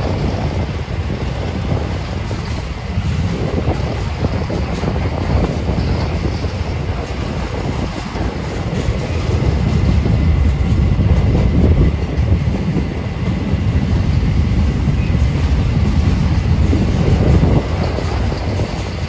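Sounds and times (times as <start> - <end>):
freight train wheels rumbling: 0.0 - 19.0.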